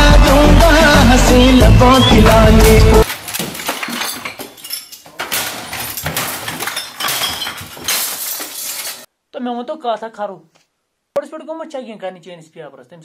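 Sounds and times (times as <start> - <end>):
glass crashing and clinking: 2.2 - 9.1.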